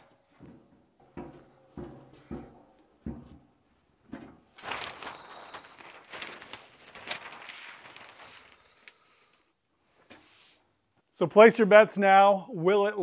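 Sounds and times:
paper sheet crackling and rustling: 0:04.5 - 0:09.4.

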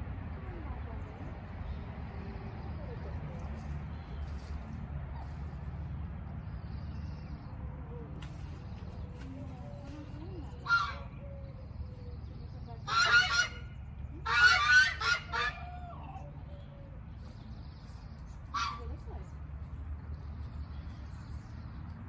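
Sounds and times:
birds honking: 0:10.6 - 0:11.2, 0:12.8 - 0:15.8.

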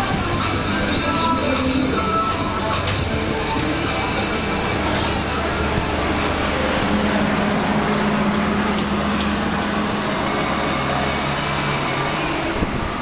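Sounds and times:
loud rushing noise: 0:00.0 - 0:13.0
machinery hum: 0:00.0 - 0:13.0.

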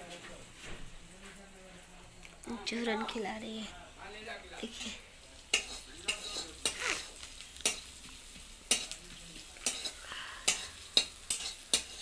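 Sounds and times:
onions sizzling: 0:00.0 - 0:12.0
spoon scraping a metal pan: 0:04.7 - 0:08.1, 0:08.7 - 0:09.0, 0:09.6 - 0:12.0.

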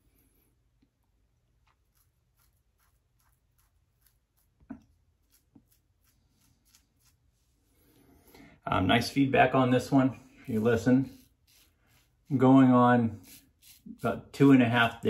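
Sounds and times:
razor cutting stubble: 0:01.8 - 0:07.3, 0:10.4 - 0:15.0.

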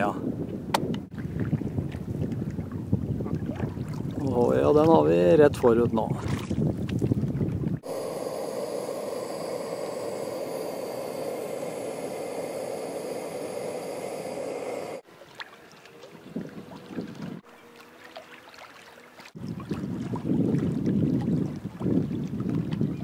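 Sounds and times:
outdoor ambient rush: 0:07.8 - 0:15.1.

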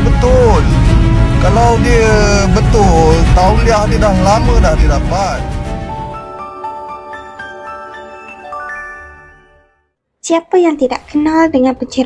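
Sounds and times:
bell-like mallet percussion jingle: 0:06.4 - 0:09.8.

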